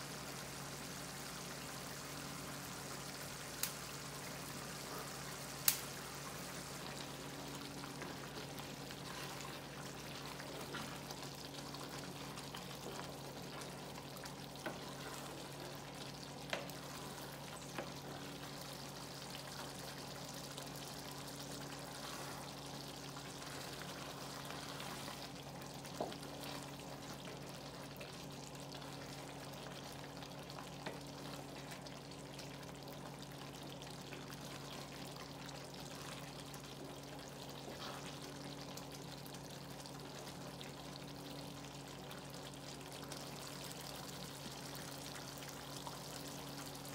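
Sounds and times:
low steady hum: 0.0s - 46.9s
stew sizzling in a pot: 0.0s - 46.9s
sharp pops: 5.6s - 6.0s.

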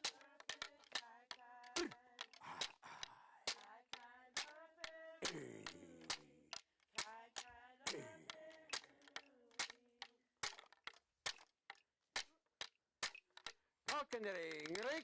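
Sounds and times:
people singing: 0.0s - 9.8s
sharp hand claps: 0.0s - 15.0s.

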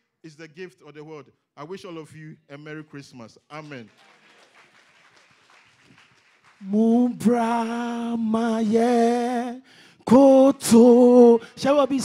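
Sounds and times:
man singing long notes: 6.6s - 12.0s.

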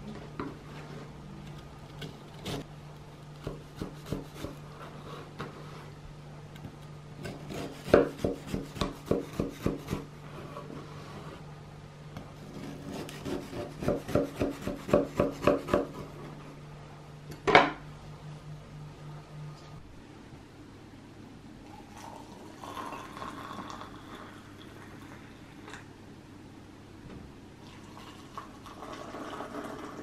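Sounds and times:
knife sawing through shortbread: 7.2s - 11.3s, 12.4s - 15.8s.

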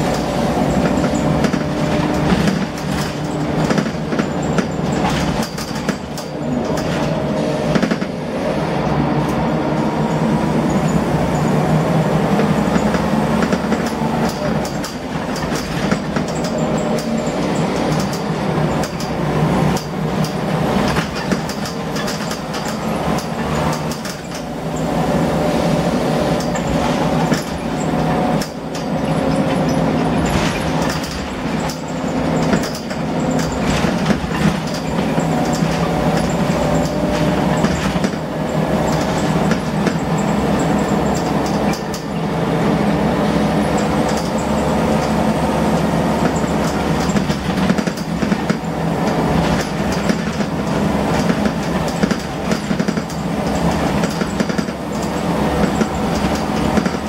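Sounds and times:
bus diesel engine: 0.0s - 57.0s
bodywork rattles and knocks: 0.1s - 8.2s, 26.4s - 40.4s.

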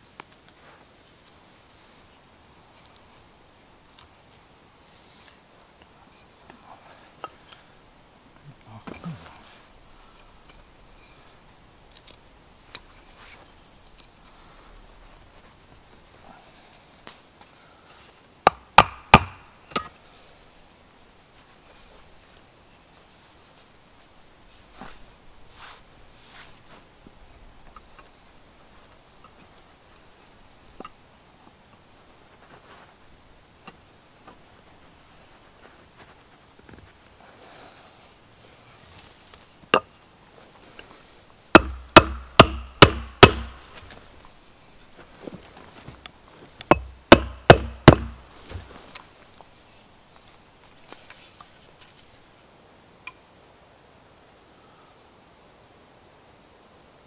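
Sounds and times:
axe knocking on wood: 18.5s - 19.9s, 41.6s - 43.6s, 46.7s - 48.2s.

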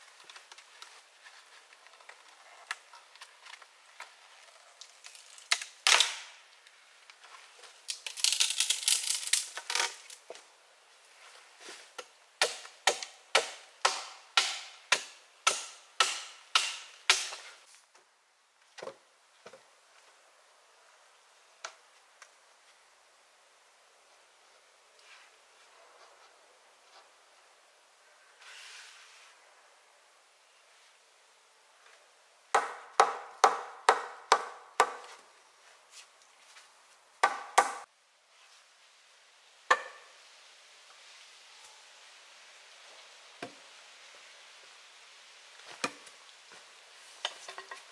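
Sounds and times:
tool striking wood: 12.4s - 17.4s, 32.6s - 35.1s, 37.2s - 37.8s, 39.7s - 40.0s
wood being chopped: 12.4s - 17.4s, 32.6s - 35.1s, 37.2s - 37.8s, 39.7s - 40.0s.

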